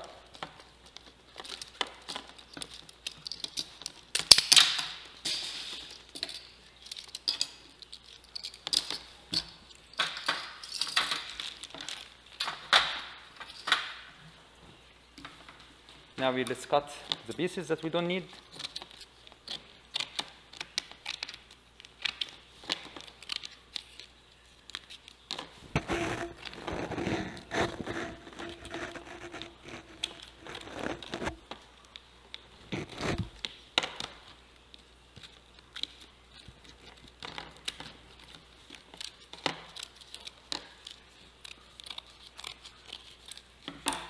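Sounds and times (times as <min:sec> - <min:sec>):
plastic film crinkling: 0:20.6 - 0:32.0, 0:34.6 - 0:43.6
handling noise: 0:25.2 - 0:31.6
scissors snipping plastic: 0:36.6 - 0:44.0.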